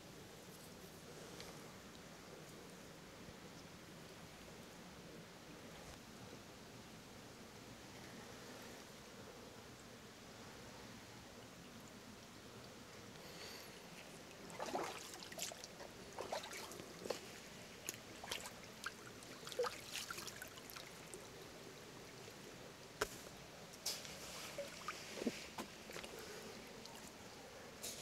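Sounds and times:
creek trickling: 13.8 - 27.4
eel splashing in shallow water: 14.4 - 21.2.

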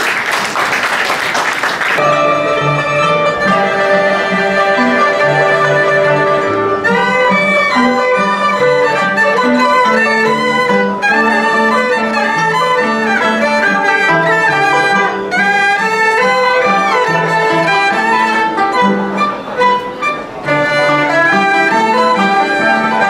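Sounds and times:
cello low line: 2.0 - 23.0
erhu melody with sliding notes: 2.0 - 23.0.

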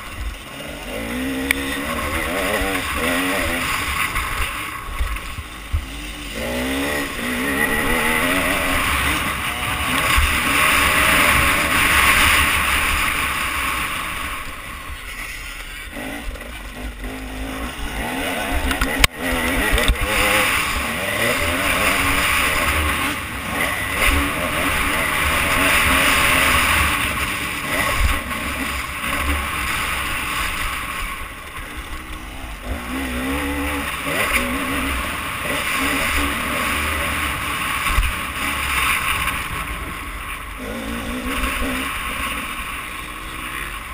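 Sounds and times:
dirt bike engine revving: 0.0 - 43.9.

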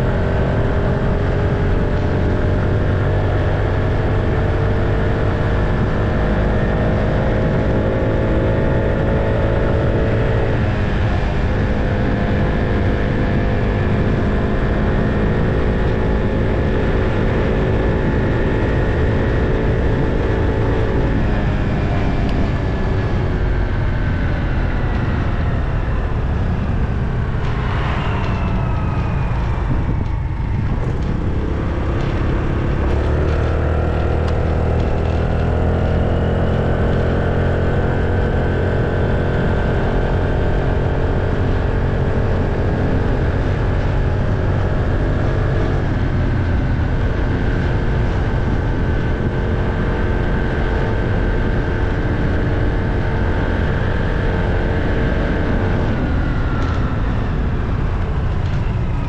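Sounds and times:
vehicle engine running: 0.0 - 59.0.

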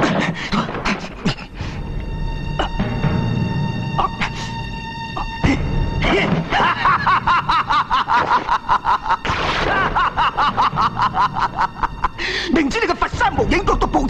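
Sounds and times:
film music: 0.0 - 14.0
loud rapid laughter: 6.1 - 12.1.

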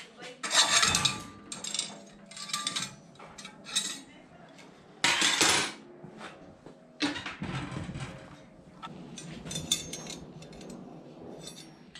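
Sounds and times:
steel rods clinking and scraping: 0.4 - 4.2, 8.8 - 11.9.

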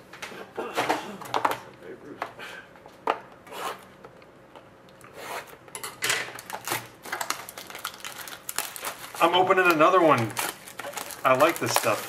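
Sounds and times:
plastic wrapping crinkling: 6.3 - 12.0.

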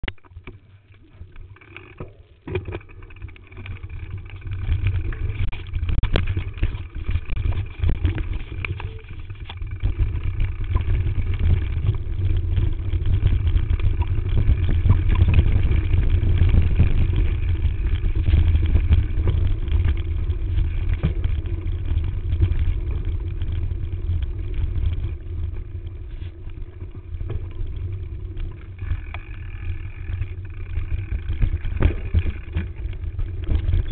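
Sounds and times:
bike knocking and rattling: 0.0 - 33.9
wind rushing over microphone: 3.8 - 29.1.

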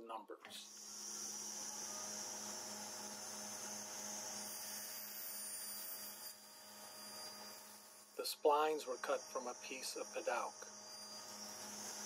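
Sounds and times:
electrical hum with faint hiss: 0.4 - 12.0.

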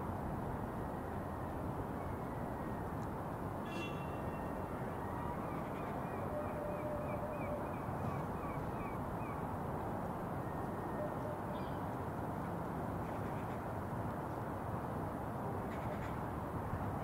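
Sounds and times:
waterfront background hum: 0.0 - 17.0.

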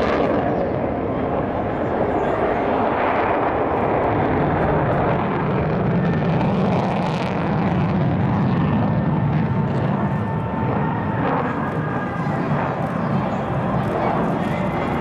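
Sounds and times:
jet roar: 0.0 - 15.0.

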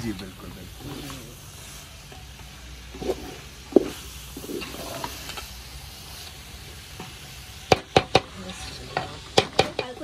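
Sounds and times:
steady sizzle: 0.0 - 10.0
wooden spoon scraping a metal pot: 2.9 - 5.4.

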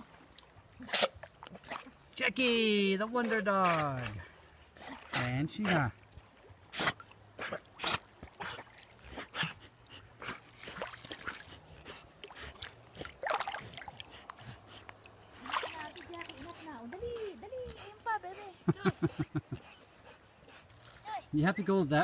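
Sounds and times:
water splashing: 0.0 - 18.4
dogs breathing: 6.7 - 21.0.

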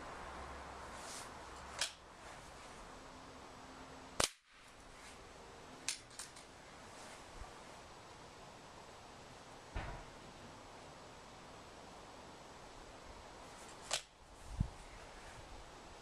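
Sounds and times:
pellet gun firing: 4.2 - 4.6.

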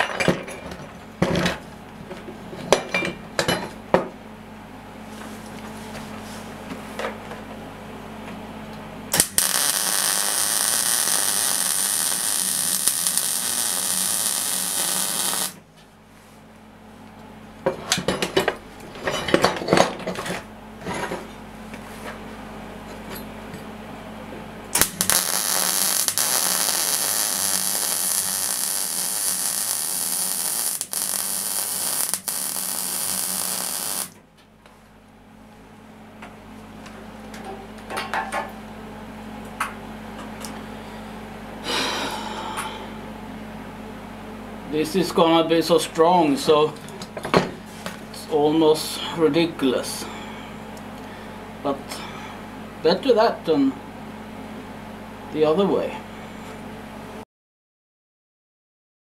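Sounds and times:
welding arc hissing: 9.1 - 15.6, 24.8 - 34.2.

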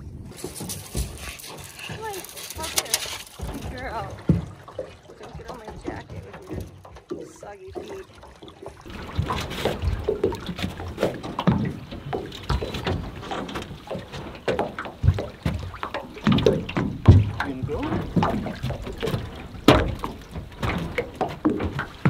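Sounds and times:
knocks on aluminum boat hull: 14.5 - 22.0.

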